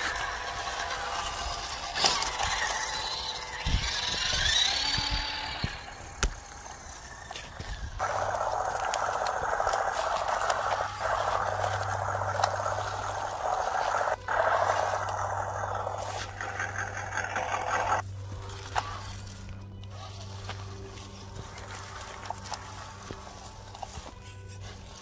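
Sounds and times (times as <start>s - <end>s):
dry leaves crunching: 0.0s - 25.0s
electric motor buzzing: 0.0s - 25.0s.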